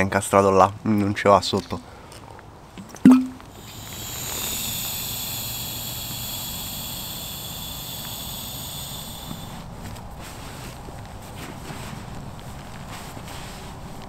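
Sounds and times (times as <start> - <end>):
air hissing out of valve: 3.4 - 9.7.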